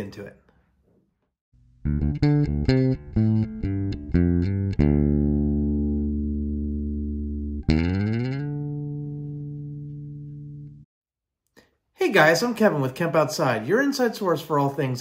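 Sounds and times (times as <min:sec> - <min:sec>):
guitar music sting: 0:01.8 - 0:10.8.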